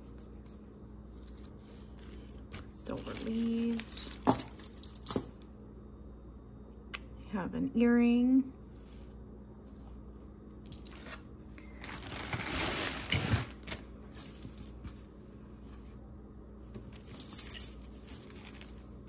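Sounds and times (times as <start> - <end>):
metal jewelry clinking: 3.0 - 5.4, 14.2 - 14.8, 17.0 - 18.9.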